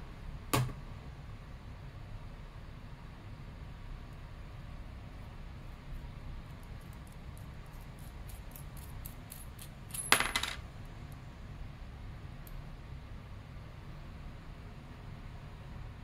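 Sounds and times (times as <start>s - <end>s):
metal cam clinking as it lands: 9.9s - 10.6s.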